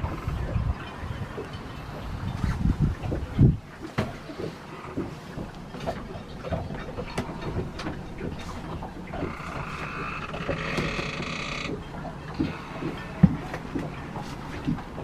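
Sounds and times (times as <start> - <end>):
steady low rumble: 0.0 - 10.6
knocks clicks and creaks in cabin: 3.1 - 15.0.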